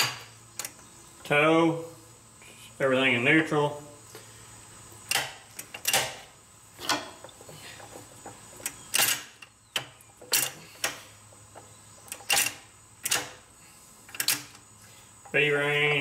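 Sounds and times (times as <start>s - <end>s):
metallic gear clicks and clunks: 8.6s - 11.0s, 12.0s - 13.4s.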